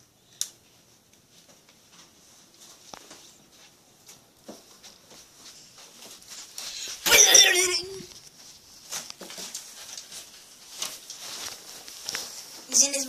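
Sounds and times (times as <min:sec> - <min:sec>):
sharp yelp-like cry: 0:06.8 - 0:08.1.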